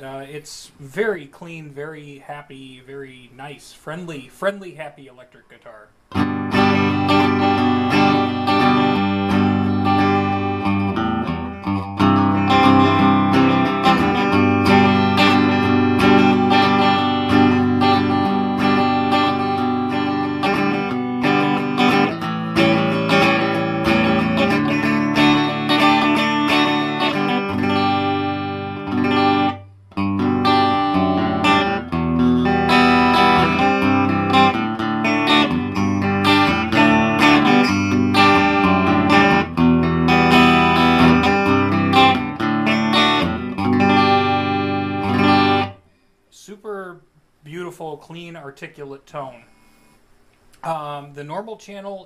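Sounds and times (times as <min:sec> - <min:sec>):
clean electric guitar: 0:06.1 - 0:46.0.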